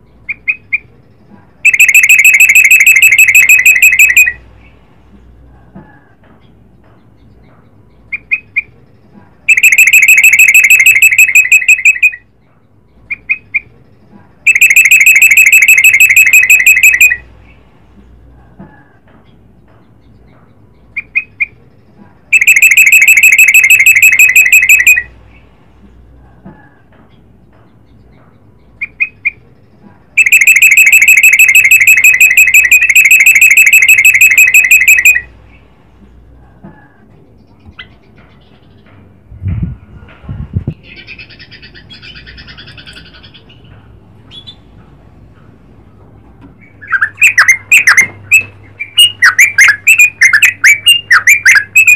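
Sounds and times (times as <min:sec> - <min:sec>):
bird singing fast trill: 0:01.6 - 0:04.4, 0:09.5 - 0:12.2, 0:14.5 - 0:17.2, 0:22.3 - 0:25.1, 0:27.8 - 0:35.3.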